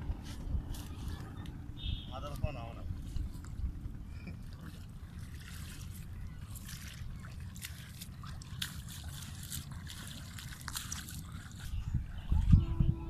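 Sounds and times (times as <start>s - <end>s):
river water sloshing: 0.0s - 12.7s
short splashes and drips: 0.7s - 12.5s.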